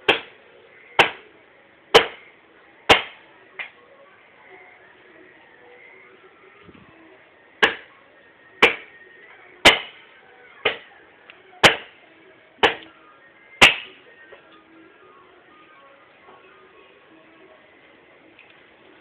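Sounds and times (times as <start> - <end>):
axe chopping into wood: 0.1 - 0.3, 1.0 - 1.2, 2.9 - 3.2, 7.6 - 7.9, 8.6 - 8.9, 9.6 - 10.0, 11.6 - 11.9, 13.6 - 13.9.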